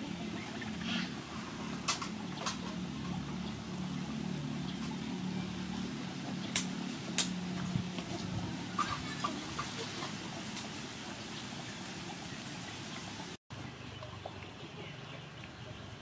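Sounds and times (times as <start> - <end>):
low motor hum: 0.0 - 8.8.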